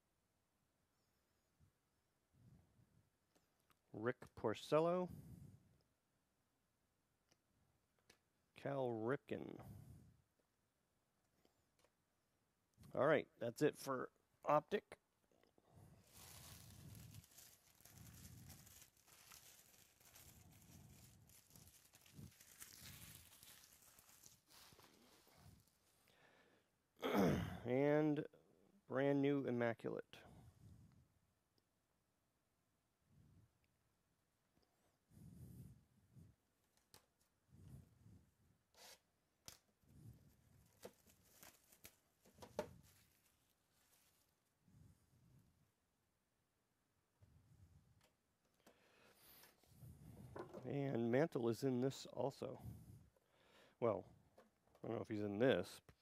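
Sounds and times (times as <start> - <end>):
foil wrappers crinkling: 16.0 - 25.7, 40.5 - 44.1.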